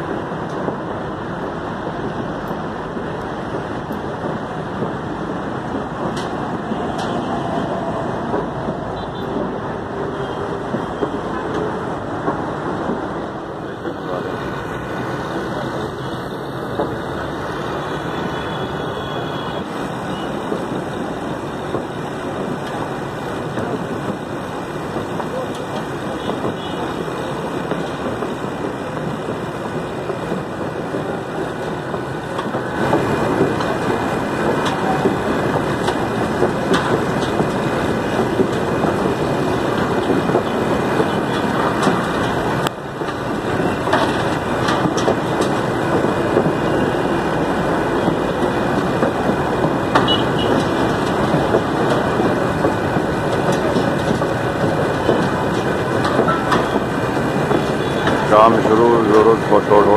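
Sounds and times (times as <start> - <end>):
heavy road traffic: 0.0 - 59.9
knocks and clatter: 1.8 - 16.0, 19.6 - 59.9
demolition work: 19.6 - 59.9.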